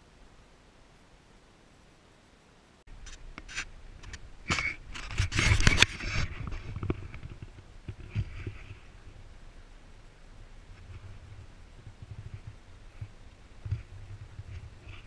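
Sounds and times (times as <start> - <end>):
irregular scrapes and sharp knocks: 2.9 - 9.2, 10.7 - 15.0.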